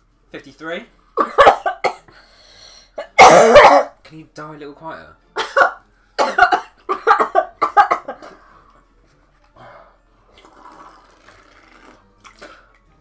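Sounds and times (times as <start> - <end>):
person coughing: 1.2 - 2.1, 3.0 - 4.0, 5.4 - 8.4.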